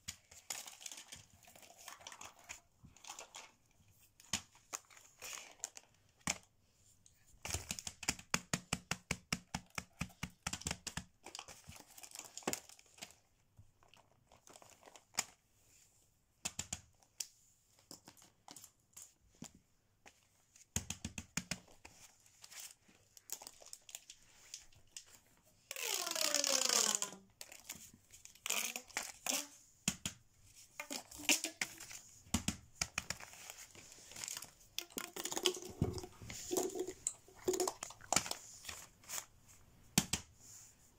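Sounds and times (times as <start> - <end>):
pop-it toy bubbles popping: 34.8 - 38.3.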